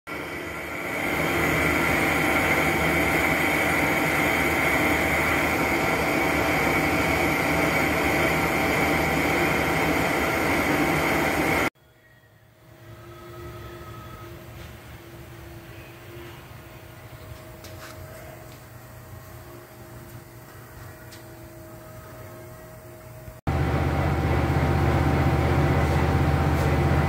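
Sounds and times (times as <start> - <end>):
metal lathe running: 0.1 - 11.7.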